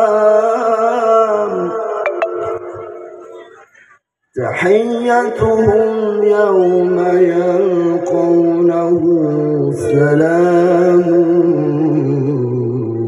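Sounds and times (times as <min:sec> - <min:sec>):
man chanting over loudspeaker: 0:00.0 - 0:02.0, 0:04.3 - 0:13.0.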